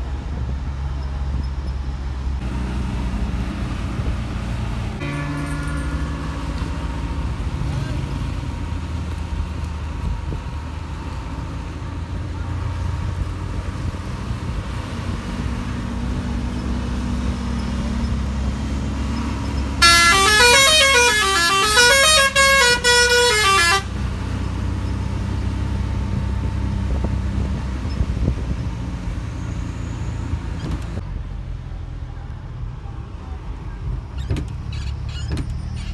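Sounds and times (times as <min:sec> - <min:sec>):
bus engine rumbling: 0:00.0 - 0:35.9
musical horn tune: 0:05.0 - 0:08.5, 0:19.8 - 0:24.0.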